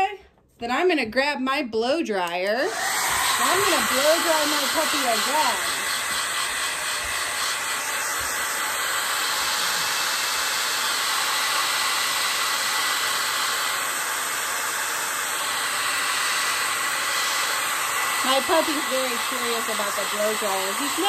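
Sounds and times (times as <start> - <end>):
hair dryer blowing: 2.3 - 21.0.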